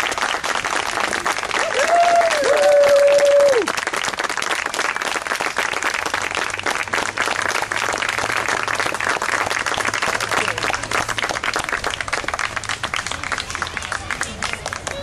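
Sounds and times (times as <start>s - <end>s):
audience clapping: 0.0s - 15.0s
long high cheer: 0.9s - 4.0s.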